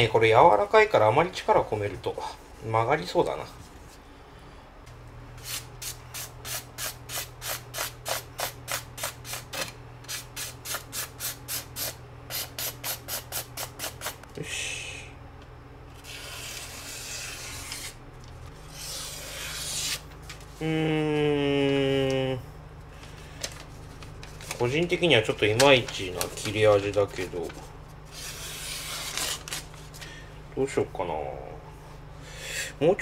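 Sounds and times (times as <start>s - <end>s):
knife scraping across newspaper: 16.0s - 18.0s, 18.6s - 20.1s, 28.1s - 29.8s
newspaper rustling: 23.0s - 30.1s.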